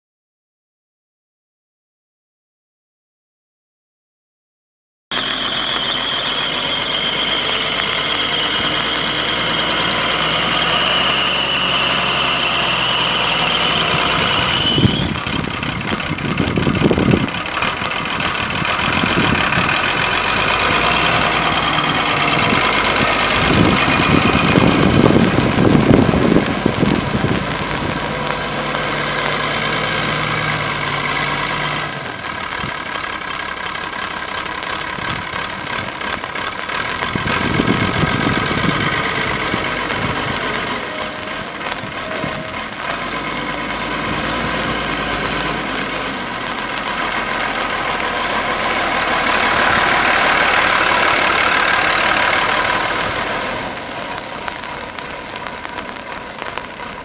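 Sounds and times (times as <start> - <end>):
high whine: 5.1 - 32.7
tractor diesel engine running: 5.1 - 57.0.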